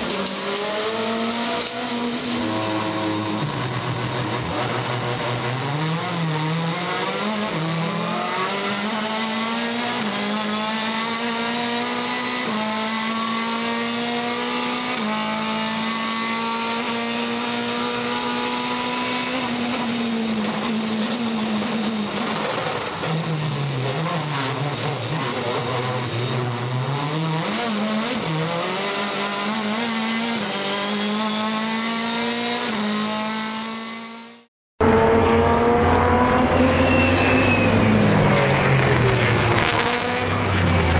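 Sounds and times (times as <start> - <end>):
racing car engine revving: 0.0 - 40.9.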